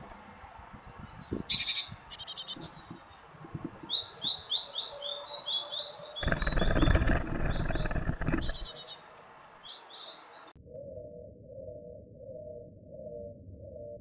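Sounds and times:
bird chirping: 0:03.9 - 0:09.0.

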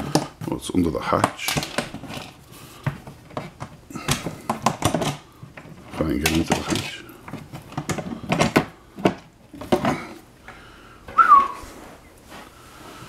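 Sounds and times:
handling knocks and clicks: 0:00.0 - 0:10.3
whistle-like squeak: 0:11.2 - 0:11.6.

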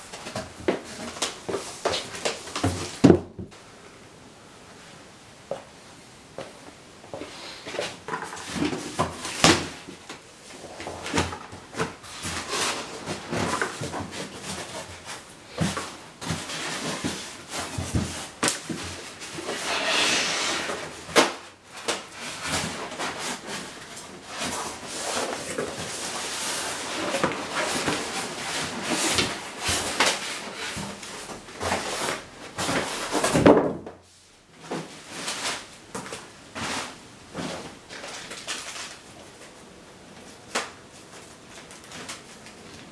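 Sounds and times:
plastic wrap rustling: 0:20.9 - 0:33.4, 0:34.6 - 0:42.9.

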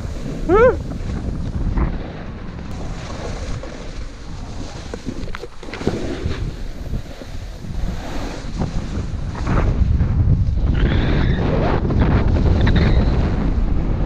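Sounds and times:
snowboard scraping over snow: 0:00.0 - 0:14.0
wind buffeting microphone: 0:00.0 - 0:14.0.

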